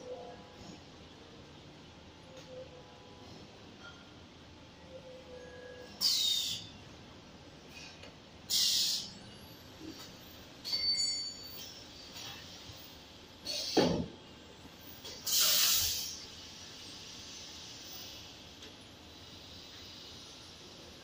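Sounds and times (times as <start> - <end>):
pneumatic air hiss: 5.8 - 6.7, 7.7 - 14.1, 14.8 - 21.0.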